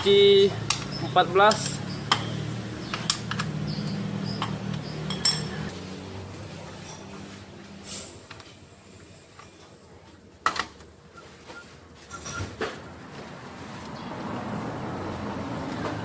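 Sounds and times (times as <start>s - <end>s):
wrench clinking on metal: 0.0s - 5.7s.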